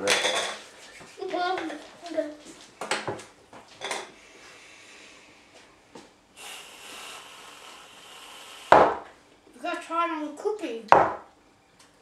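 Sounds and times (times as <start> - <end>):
whipped cream can hissing: 6.4 - 9.1.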